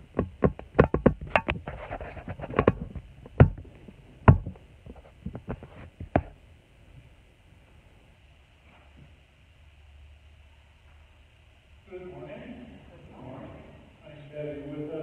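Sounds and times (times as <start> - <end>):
clicks taps and knocks of handling: 0.1 - 1.7, 2.4 - 3.7.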